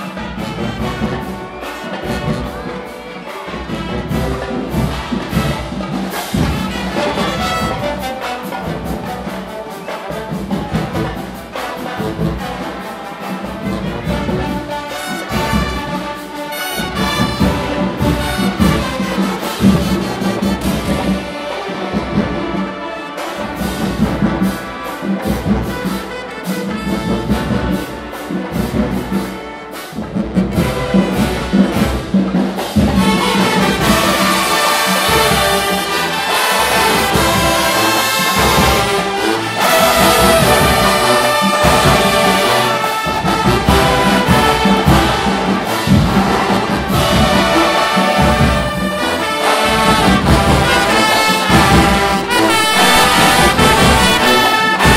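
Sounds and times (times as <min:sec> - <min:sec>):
marching drums beat: 0:00.0 - 0:54.9
trumpets and trombones: 0:00.0 - 0:54.9.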